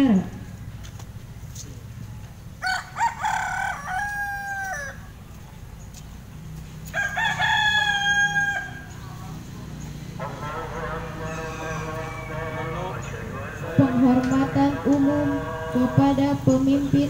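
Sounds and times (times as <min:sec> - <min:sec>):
rooster crowing: 0:02.6 - 0:05.2, 0:06.9 - 0:09.0, 0:10.2 - 0:13.2.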